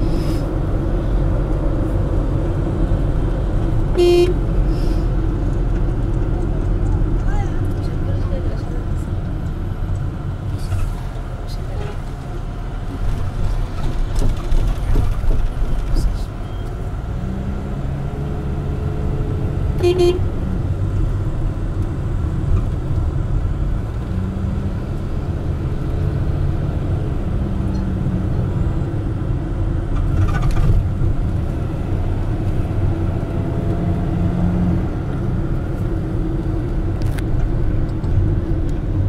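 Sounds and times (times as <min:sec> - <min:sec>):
car driving rumble inside cabin: 0:00.0 - 0:39.0
car horn toot: 0:03.9 - 0:04.4, 0:19.8 - 0:20.3.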